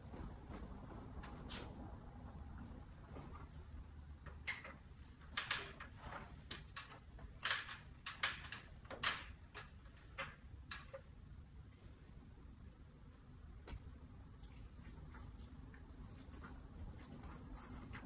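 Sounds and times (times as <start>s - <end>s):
low room hum: 0.0s - 18.0s
ladder shifting: 4.2s - 11.1s.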